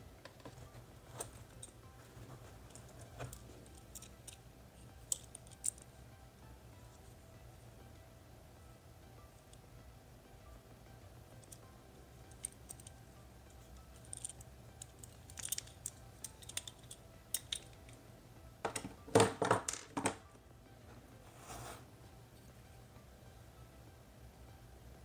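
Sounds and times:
metal tripod clicking: 14.0s - 18.0s.

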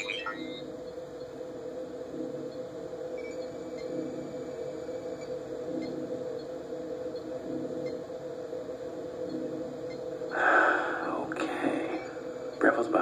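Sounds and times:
faint high blips: 0.0s - 0.6s
low electronic drone: 0.0s - 13.0s.

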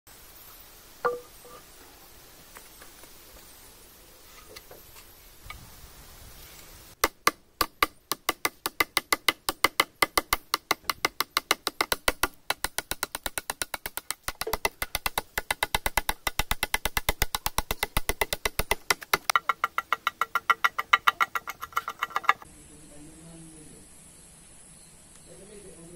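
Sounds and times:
hatchet chopping wood: 7.0s - 22.4s.

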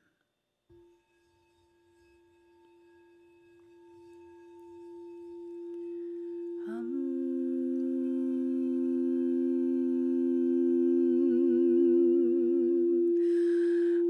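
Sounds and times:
singing bowl ringing tone: 0.7s - 14.0s
low hummed note: 3.5s - 14.0s.

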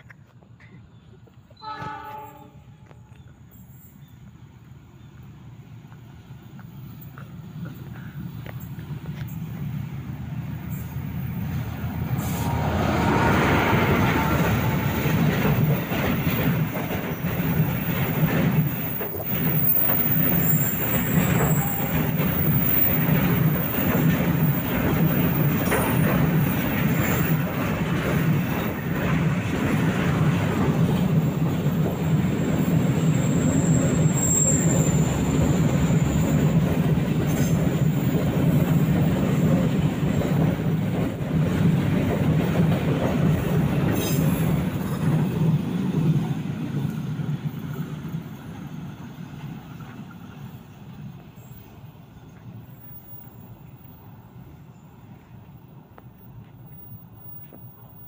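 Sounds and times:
diesel locomotives passing: 0.0s - 58.0s
train wheels rumbling on rail: 0.0s - 58.0s
high wheel squeal: 19.2s - 23.1s, 32.4s - 36.4s.

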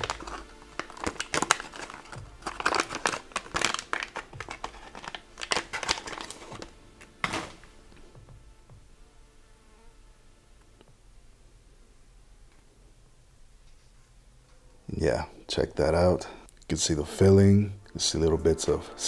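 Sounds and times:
foil pouch crinkling: 0.0s - 7.7s.

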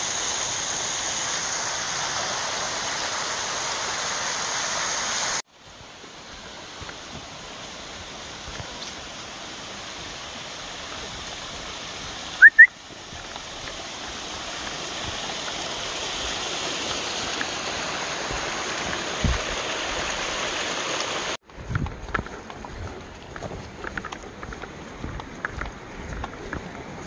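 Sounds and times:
creek cascading over rocks: 0.0s - 21.4s
short rising whistles: 12.4s - 12.8s.

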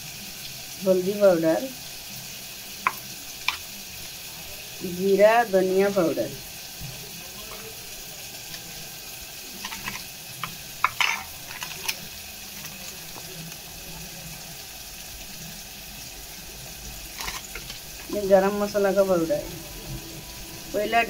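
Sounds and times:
food sizzling in pan: 0.0s - 21.0s
spoon clinking steel bowl: 9.6s - 12.8s, 17.2s - 17.8s.

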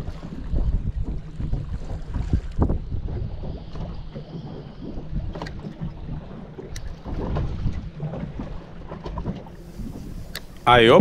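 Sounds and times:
water slapping against boat hull: 0.0s - 10.7s
wind buffeting microphone: 0.0s - 11.0s.

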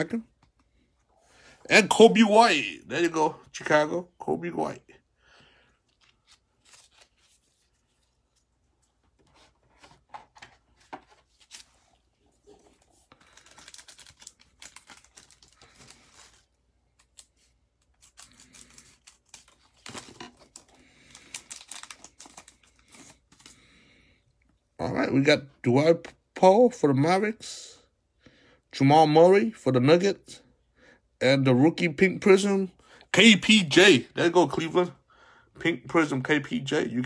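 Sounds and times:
cellophane wrapper crinkling and tearing: 5.9s - 8.4s, 11.0s - 23.6s.

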